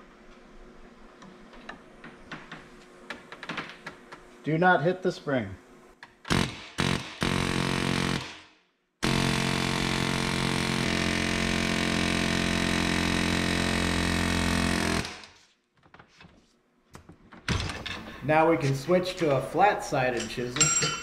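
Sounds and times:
pneumatic air chisel hammering metal: 6.3s - 15.4s.

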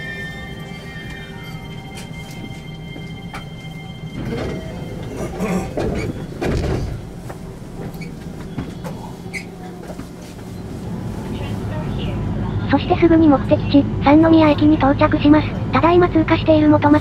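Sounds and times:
train rumbling and rattling: 0.0s - 17.0s.

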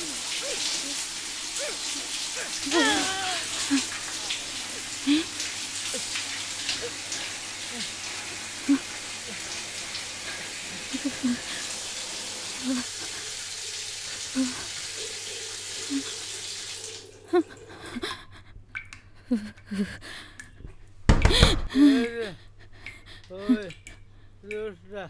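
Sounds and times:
water running: 0.0s - 20.4s
woman sobbing: 1.6s - 4.1s, 5.0s - 6.1s, 10.7s - 11.6s, 12.6s - 12.9s, 14.4s - 14.7s, 15.9s - 16.1s, 17.3s - 18.6s, 19.2s - 20.4s, 21.3s - 23.7s
woman gasping: 2.4s - 3.8s, 21.3s - 23.6s.

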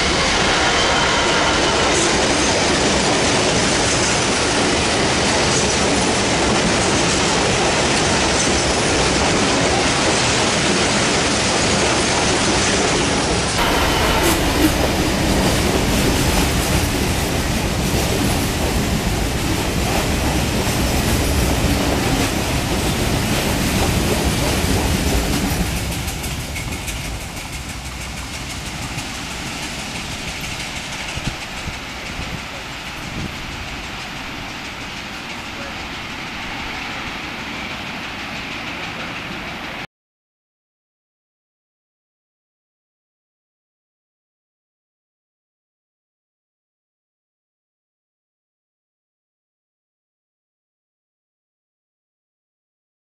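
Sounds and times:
train wheels rumbling on rails: 0.0s - 39.9s.

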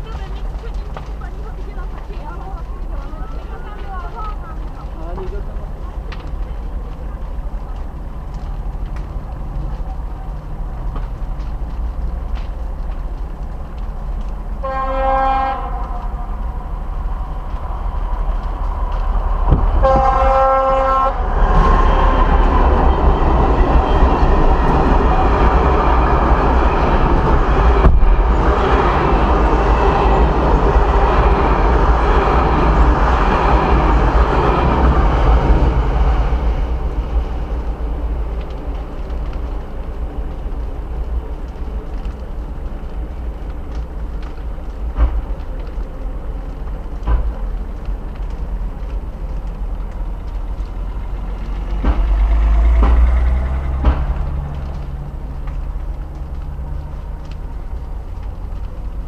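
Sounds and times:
train horn blasts: 14.6s - 16.0s, 19.8s - 21.3s
train rushing and rolling past: 14.6s - 41.8s, 44.4s - 58.0s.

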